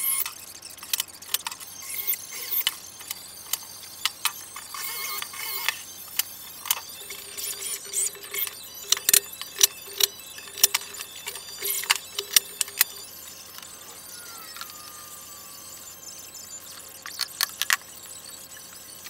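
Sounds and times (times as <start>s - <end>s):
sharp clicks and knocks: 0.8s - 13.7s.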